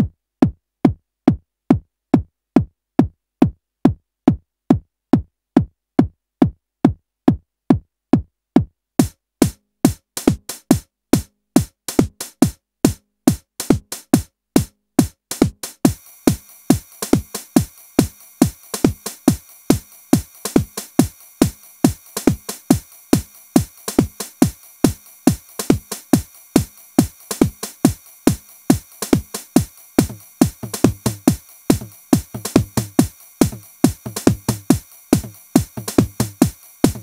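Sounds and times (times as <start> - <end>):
kick drum: 0.0 - 37.0
hi-hat hits: 9.0 - 37.0
hissy synth tones: 15.8 - 37.0.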